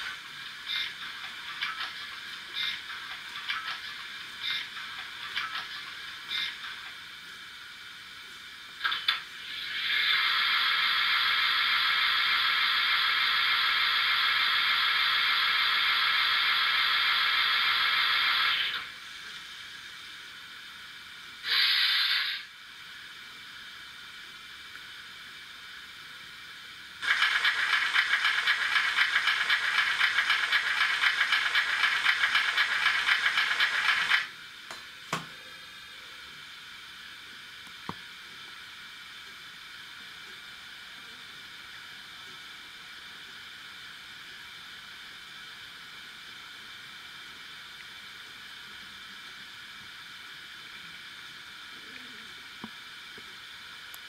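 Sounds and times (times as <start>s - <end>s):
rapidly pulsing hiss: 0.0s - 54.0s
steam hiss from small speaker: 0.0s - 54.0s.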